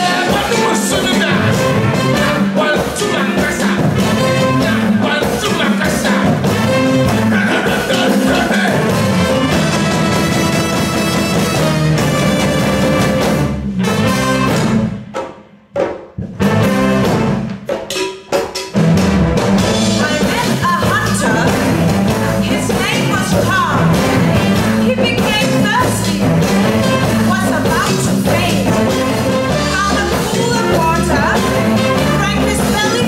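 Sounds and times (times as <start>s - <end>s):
hand drums: 0.0s - 13.5s
big band brass section: 0.0s - 15.3s, 16.2s - 18.0s, 18.6s - 33.0s.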